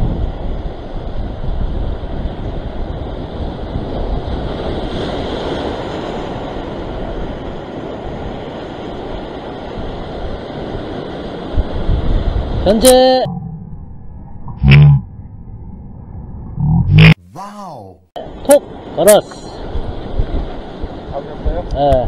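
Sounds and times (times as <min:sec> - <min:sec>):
wind rumbling on microphone: 0:00.0 - 0:17.2, 0:19.5 - 0:22.0
ocean surf breaking over rocks: 0:00.2 - 0:13.3, 0:18.2 - 0:22.0.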